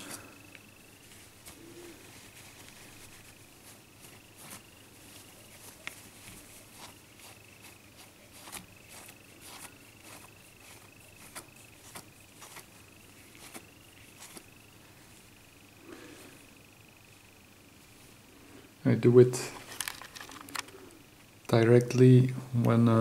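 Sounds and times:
cloth wiping glass: 1.0 - 14.5.

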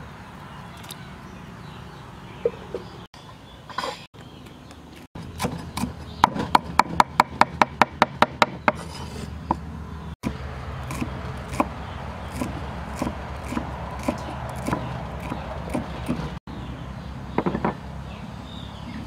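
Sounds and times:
cleaver chopping on wooden board: 10.2 - 11.7, 12.3 - 16.3.

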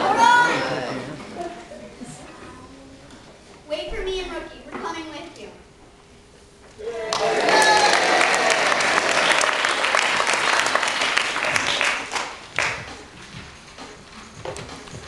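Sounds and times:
audience applauding: 6.8 - 12.8.

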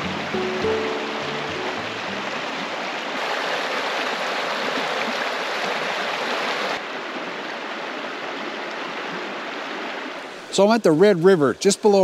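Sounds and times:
background music: 0.0 - 2.6
river flowing over rocks: 0.0 - 10.6.

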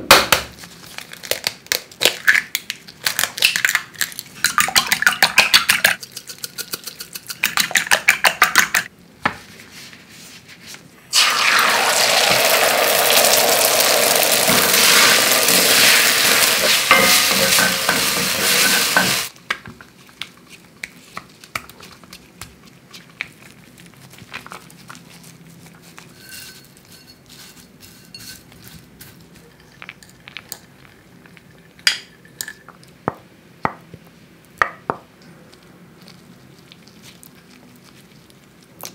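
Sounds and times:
fork whisking eggs in bowl: 4.4 - 8.9, 14.7 - 19.3
eggs sizzling in hot pan: 11.1 - 19.4.

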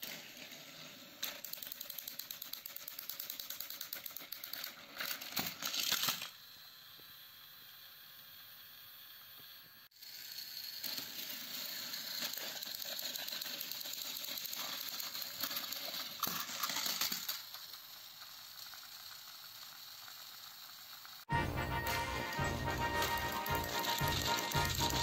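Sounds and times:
toy trains clattering off track: 0.0 - 6.6, 9.9 - 21.3, 22.2 - 25.0
toy train motors whirring: 0.0 - 25.0
wheels rattling and clicking: 10.8 - 21.2.

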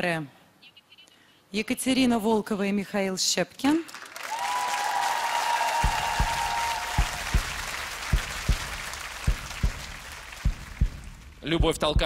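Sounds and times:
studio audience applauding: 3.9 - 11.4
low drum thumps: 5.8 - 12.0.

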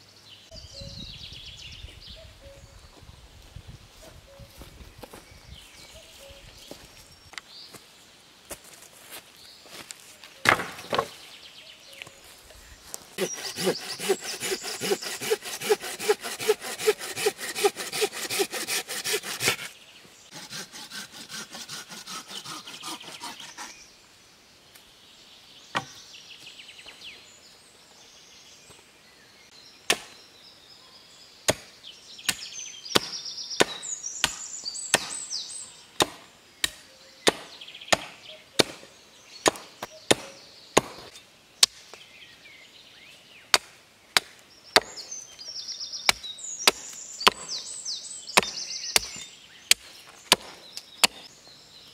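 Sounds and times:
hatchet chopping wood: 10.4 - 11.1, 13.2 - 19.7, 20.3 - 23.7, 25.7 - 26.0, 29.9 - 30.2, 31.5 - 31.7, 32.3 - 35.2, 36.0 - 41.8, 43.5 - 45.0, 46.1 - 47.6, 48.4 - 51.3
hand saw cutting branch: 13.2 - 23.8.

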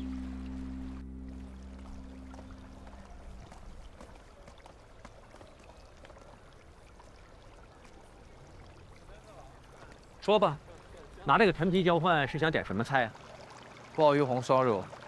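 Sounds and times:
background music: 0.0 - 3.0
water trickling and bubbling: 0.0 - 15.0.

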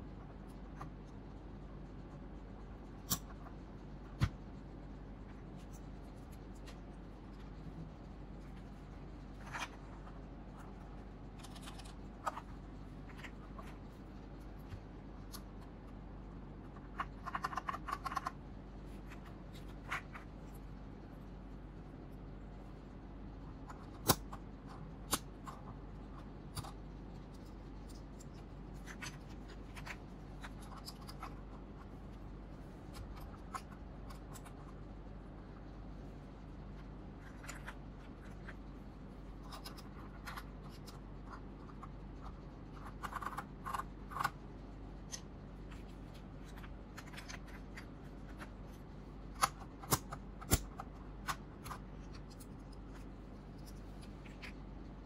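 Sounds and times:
steady low hum: 0.0 - 55.0
keycaps clicking and tapping: 16.7 - 18.4.

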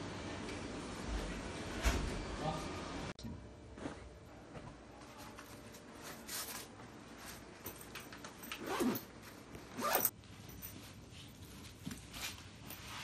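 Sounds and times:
clothes rustling: 5.2 - 13.0
backpack zipper rasping: 8.5 - 9.1, 9.7 - 10.1.

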